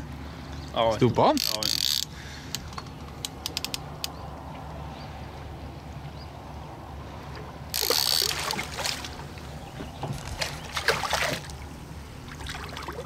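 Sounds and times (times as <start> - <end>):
fish thrashing splashing water: 7.8 - 9.4, 10.1 - 13.0.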